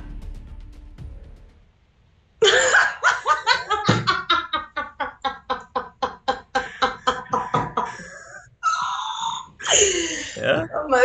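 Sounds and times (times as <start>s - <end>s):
woman laughing hard: 2.4s - 8.4s.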